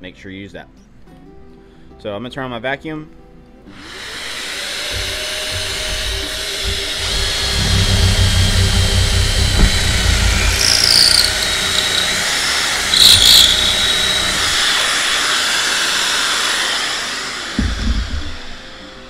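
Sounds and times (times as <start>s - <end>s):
cordless drill boring into wood: 3.7s - 19.0s
dust extractor running: 3.9s - 19.0s.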